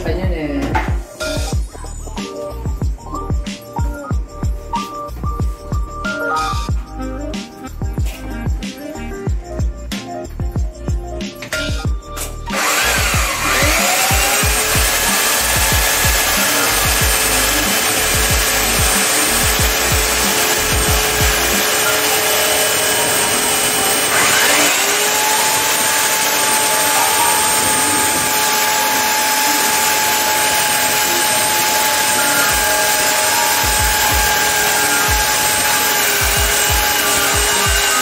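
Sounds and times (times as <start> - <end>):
electric drill whining: 12.2 - 38.0
drill bit grinding tile: 12.5 - 38.0.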